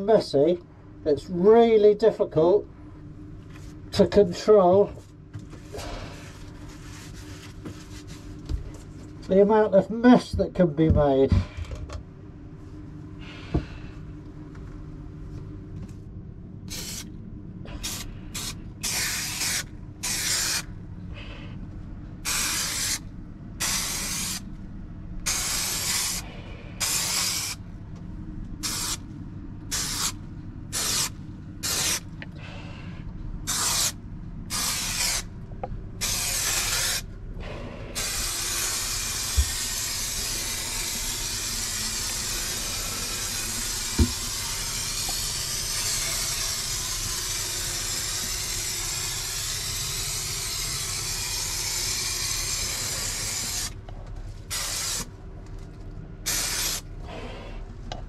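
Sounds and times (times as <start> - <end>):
spray adhesive hissing: 16.7 - 17.1, 17.7 - 20.7, 22.2 - 24.5, 25.2 - 27.6, 28.6 - 29.0, 29.7 - 32.1, 33.5 - 35.3, 36.0 - 37.1, 38.0 - 53.8, 54.5 - 55.1, 56.3 - 56.8.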